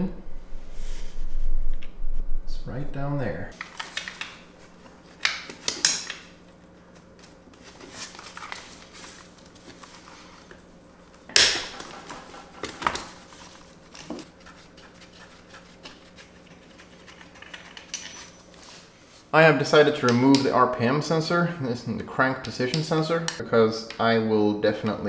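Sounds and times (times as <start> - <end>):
socket wrench clinking on metal: 17.8 - 18.4.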